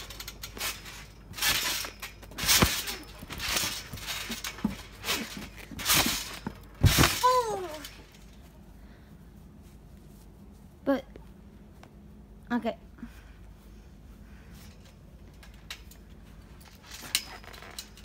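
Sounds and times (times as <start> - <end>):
ball bouncing on trampoline: 0.0 - 8.4
trampoline frame rattling: 0.0 - 8.6, 14.5 - 18.0.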